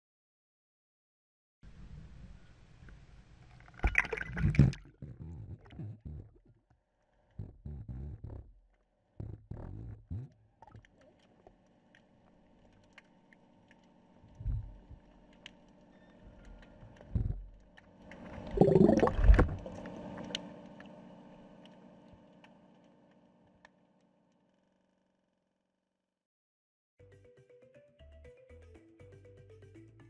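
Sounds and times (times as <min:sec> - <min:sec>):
rushing bubbling water burst: 0:03.8 - 0:05.0, 0:18.4 - 0:20.2
underwater thumps of moving water: 0:03.8 - 0:06.5, 0:18.5 - 0:19.8
faint steady hum: 0:09.1 - 0:23.8.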